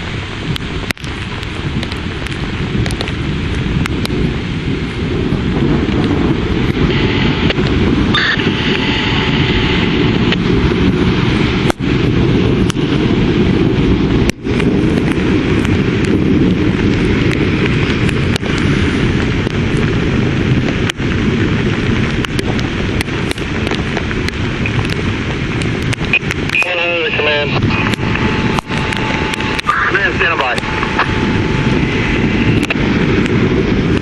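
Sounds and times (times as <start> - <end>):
low thunder rumble: 0.0 - 34.0
rain: 0.0 - 34.0
wind buffeting microphone: 0.0 - 34.0.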